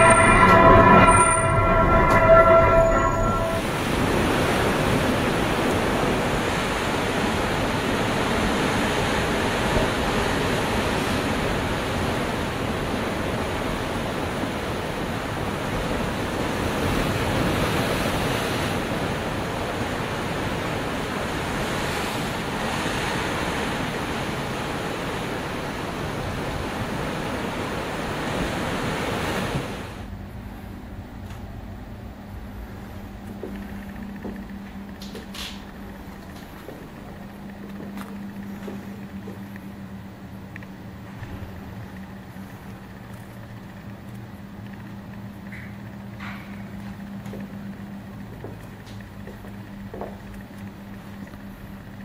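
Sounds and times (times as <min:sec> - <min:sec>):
waves breaking on rocky shore: 0:03.6 - 0:30.1.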